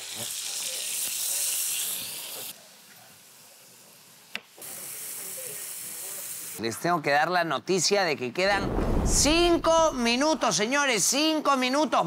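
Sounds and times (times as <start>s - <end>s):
food sizzling in a frying pan: 0.0s - 6.6s.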